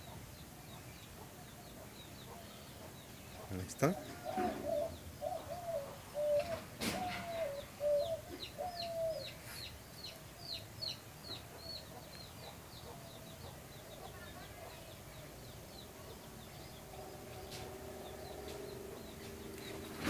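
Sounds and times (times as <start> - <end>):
hen clucking: 1.2 - 9.7.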